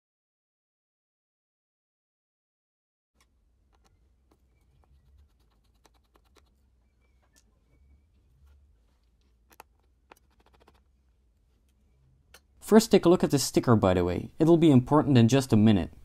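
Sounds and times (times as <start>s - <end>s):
small screwdriver clicks and scratches: 9.5s - 10.9s.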